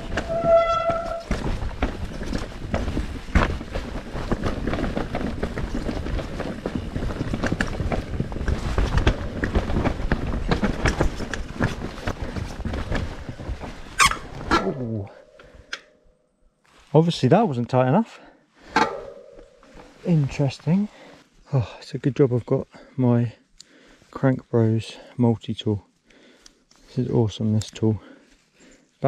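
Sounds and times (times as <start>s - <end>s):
brakes squealing: 0.0s - 1.5s
bike knocks and rattles: 0.0s - 14.7s
bike tyre and trail noise: 0.0s - 16.0s, 18.6s - 21.5s.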